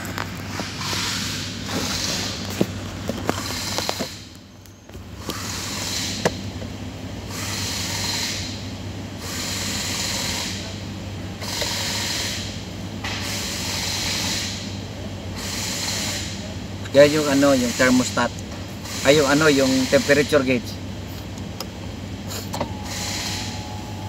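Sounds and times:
hiss: 0:22.3 - 0:23.8.

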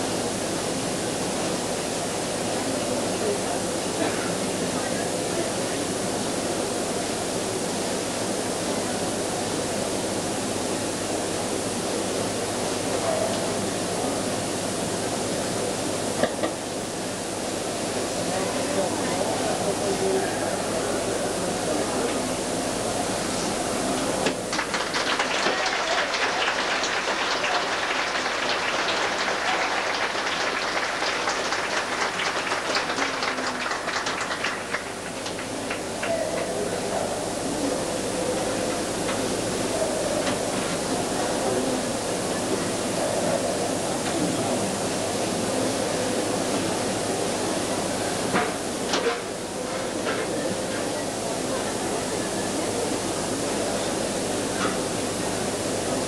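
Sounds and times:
videotape hiss: 0:22.1 - 0:36.0
indoor arena audience: 0:23.4 - 0:38.5.

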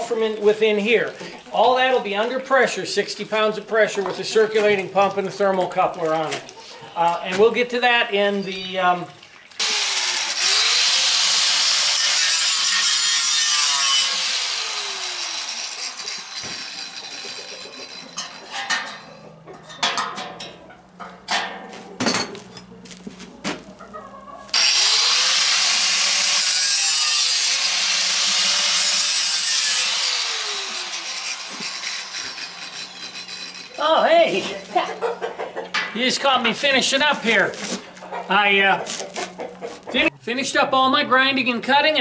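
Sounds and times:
grinder disc winding down: 0:09.6 - 0:12.5, 0:13.6 - 0:19.2, 0:24.5 - 0:34.0
angle grinder cutting steel: 0:09.6 - 0:19.2, 0:24.5 - 0:34.4.

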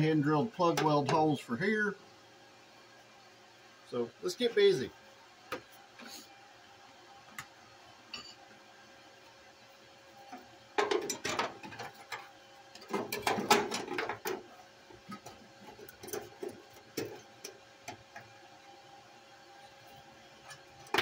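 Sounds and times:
sheet metal clicks and scrapes: 0:10.8 - 0:14.4.

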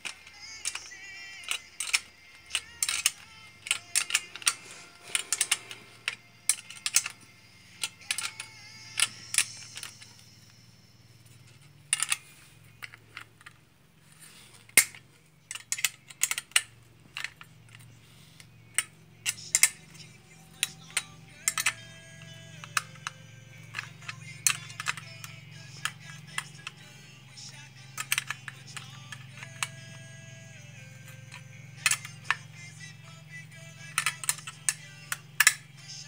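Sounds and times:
wrench clinking against bolts: 0:00.0 - 0:07.2, 0:14.8 - 0:17.9, 0:18.7 - 0:26.9, 0:27.5 - 0:30.0, 0:31.0 - 0:32.9, 0:33.8 - 0:35.8.

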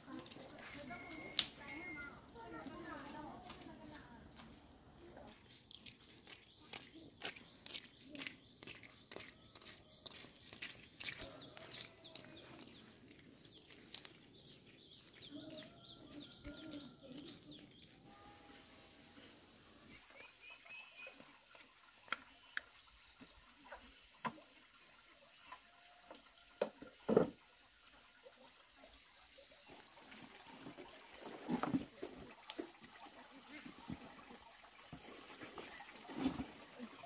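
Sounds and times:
birdsong and chirping: 0:04.6 - 0:21.3.

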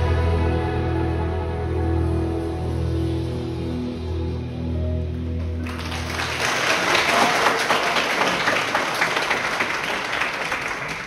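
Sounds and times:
congregation applauding: 0:05.6 - 0:11.0.

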